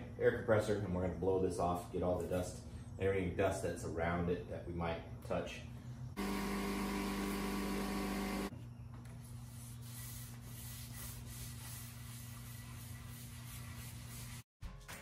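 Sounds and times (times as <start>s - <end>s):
cloth rag rubbing wood: 9.2s - 14.5s.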